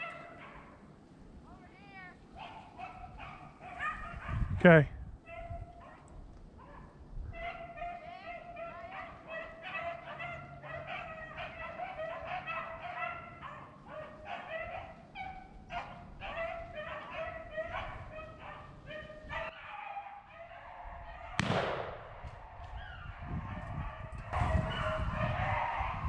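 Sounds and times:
pack of dogs baying: 0.0 - 0.9, 2.4 - 4.5, 5.3 - 21.4, 23.1 - 26.0
wind noise on microphone: 2.8 - 7.9, 14.3 - 19.5, 20.7 - 26.0.

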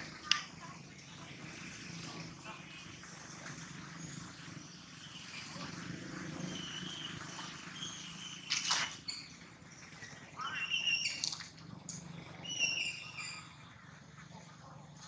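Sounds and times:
high-pitched animal chirps: 10.4 - 11.5.

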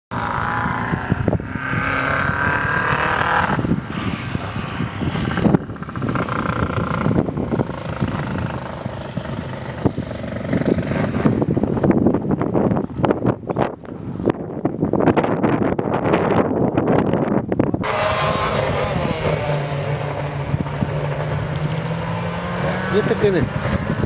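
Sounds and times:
rally car engine revving: 0.1 - 11.7, 17.8 - 24.0
exhaust crack: 0.1 - 13.4, 15.0 - 24.0.

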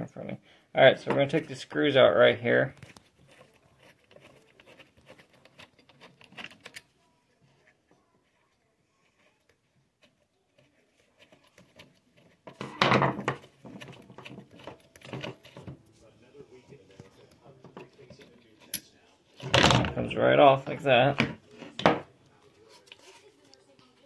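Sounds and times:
screwdriver clicks and scrapes: 2.8 - 6.9.

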